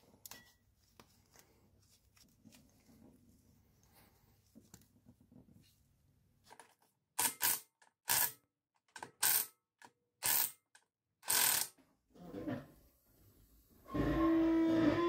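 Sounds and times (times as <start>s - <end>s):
hand ratchet clicking: 7.2s - 8.4s, 9.0s - 9.5s, 10.2s - 11.7s.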